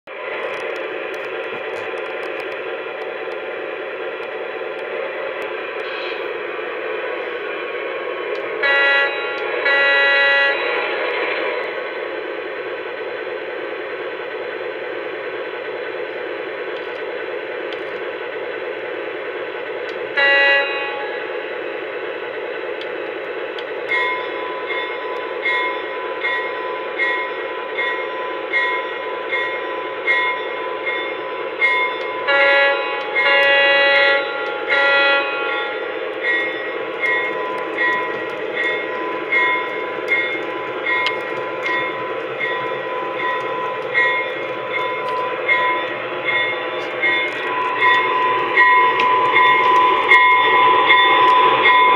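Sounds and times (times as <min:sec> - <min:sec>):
locomotive bell ringing: 0:08.6 - 0:11.0, 0:23.8 - 0:51.9
train horn blasts: 0:08.6 - 0:11.0, 0:20.2 - 0:21.3, 0:32.2 - 0:35.9
diesel engine rumble: 0:30.8 - 0:51.9.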